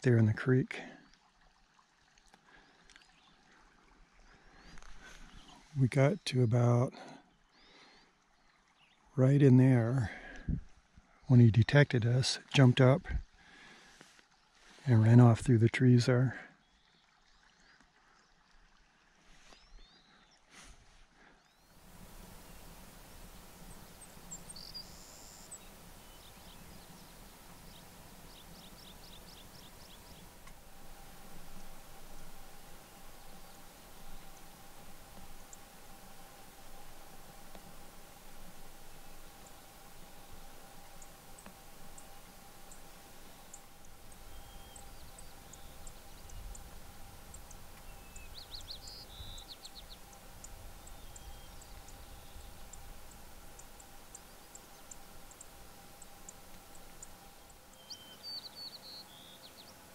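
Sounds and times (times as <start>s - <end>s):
faint steady hiss: 0.0s - 59.9s
high bird chirps: 21.5s - 36.1s, 36.7s - 59.8s.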